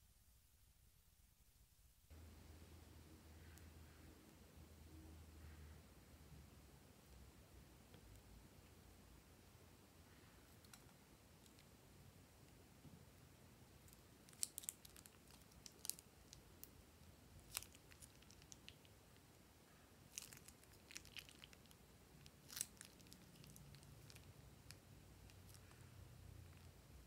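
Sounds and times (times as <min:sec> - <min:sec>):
piping bag clicks and crackles: 0:13.9 - 0:16.8, 0:17.4 - 0:19.0, 0:20.1 - 0:25.8.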